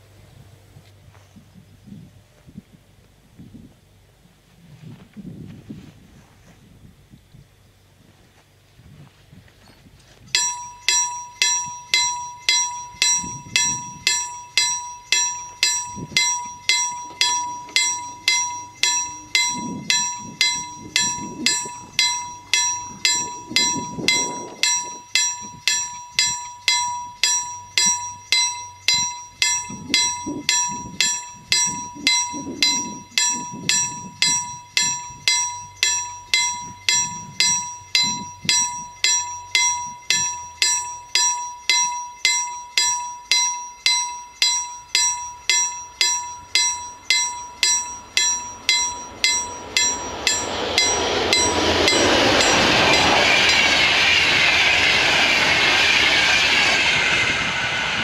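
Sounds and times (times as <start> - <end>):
level crossing bell ringing: 10.3 - 56.6
train wheels rushing on rails: 10.4 - 58.0.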